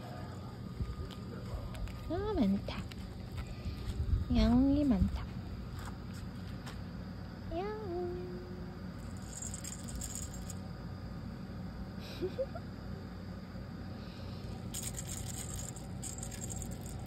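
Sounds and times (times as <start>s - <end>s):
small object jingling: 9.0s - 10.6s, 14.7s - 17.0s.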